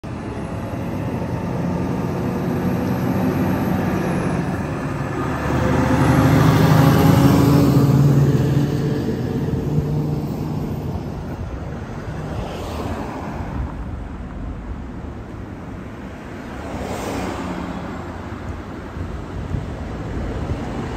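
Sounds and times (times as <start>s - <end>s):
diesel truck engine passing: 0.1s - 20.9s.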